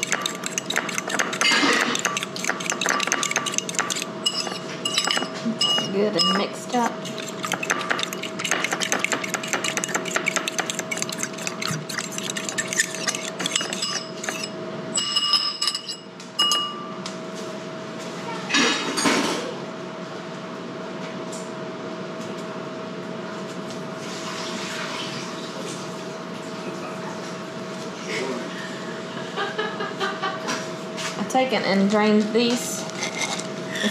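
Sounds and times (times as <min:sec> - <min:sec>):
fork whisking in ceramic bowl: 0:00.0 - 0:14.6, 0:15.6 - 0:16.0, 0:32.9 - 0:33.9
metal clinking on ceramic: 0:00.0 - 0:16.8
steady hum: 0:00.0 - 0:17.9.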